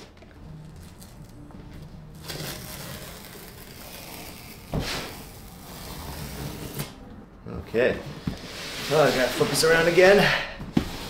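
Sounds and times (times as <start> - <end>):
cardboard scraping and rustling: 8.2 - 11.0.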